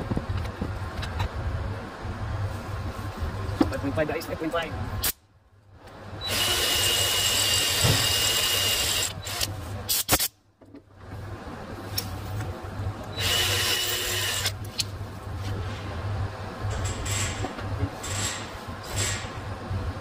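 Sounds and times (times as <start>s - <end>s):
electric drill whine: 6.2s - 9.5s, 13.2s - 14.5s.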